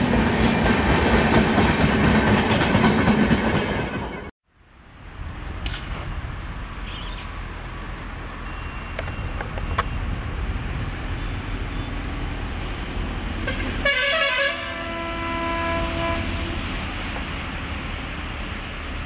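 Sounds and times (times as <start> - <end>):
approaching train rumble: 0.0 - 19.0
locomotive horn blast: 6.8 - 7.3, 13.4 - 16.9.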